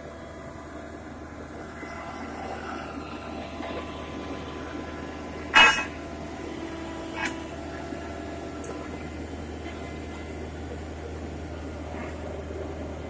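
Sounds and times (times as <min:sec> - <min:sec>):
drilling rig droning: 0:00.0 - 0:13.0
loud sharp noise: 0:05.6 - 0:06.0.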